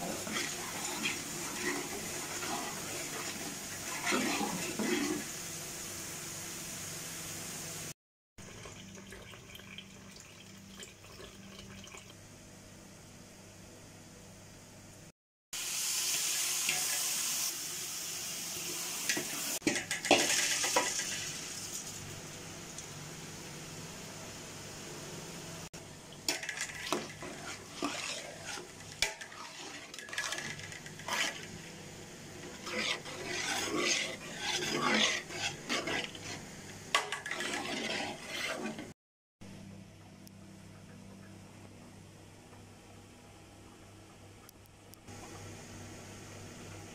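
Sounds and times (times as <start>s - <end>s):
oil sizzling: 0.0s - 12.2s, 15.6s - 39.0s
metal spoon scraping pot: 26.3s - 31.6s, 32.4s - 39.0s.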